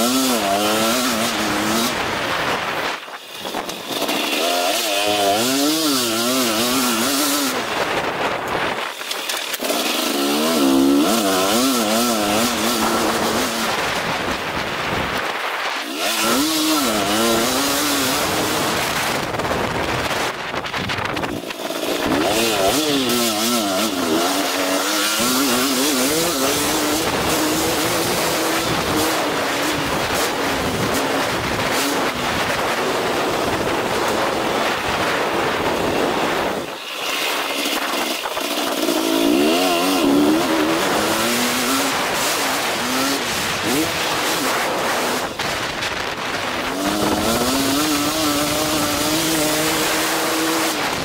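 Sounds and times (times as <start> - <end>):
motorcycle engine revving: 0.0 - 51.0
wind on microphone: 12.2 - 23.0.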